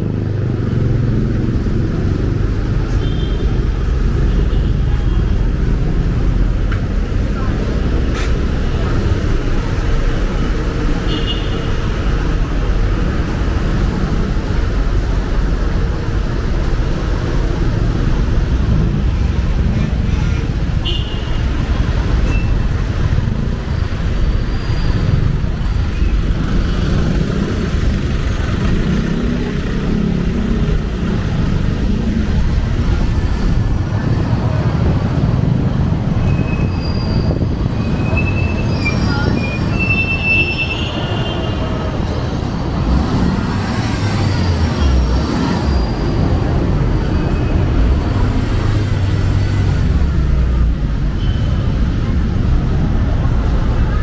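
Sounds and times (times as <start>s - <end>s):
city traffic rumble: 0.0s - 54.0s
high squeals: 36.2s - 41.8s.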